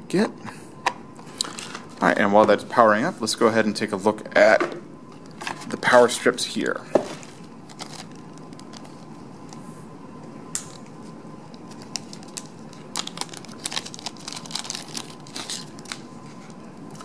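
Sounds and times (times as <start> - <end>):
faint steady hum: 0.0 - 17.0
plastic packaging crinkling: 7.1 - 9.2, 11.6 - 17.0.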